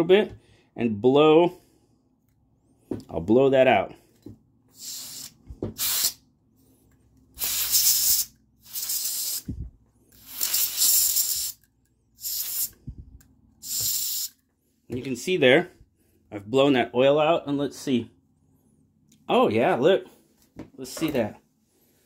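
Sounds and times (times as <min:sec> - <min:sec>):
canned air hissing blasts: 0:04.7 - 0:06.2, 0:07.4 - 0:13.0, 0:13.6 - 0:14.4.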